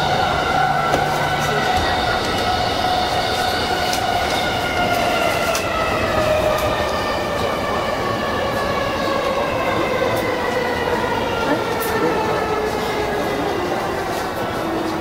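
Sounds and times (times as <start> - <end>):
train running rumble: 0.0 - 10.4.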